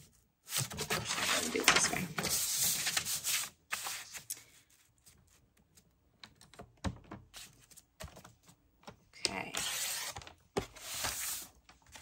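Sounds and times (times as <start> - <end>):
paper rustling: 0.5 - 5.8.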